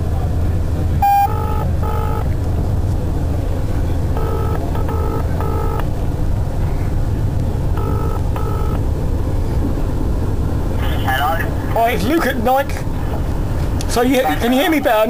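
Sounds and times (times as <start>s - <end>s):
moving train rumble: 0.0s - 15.0s
phone ringing tone: 1.0s - 2.3s, 4.1s - 5.9s, 7.8s - 8.8s.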